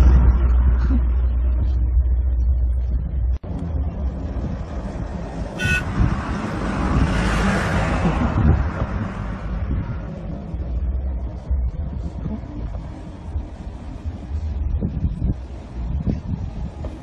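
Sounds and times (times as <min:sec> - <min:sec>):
vehicle engine passing by: 0:03.4 - 0:13.3
vehicle horn toot: 0:05.6 - 0:05.9.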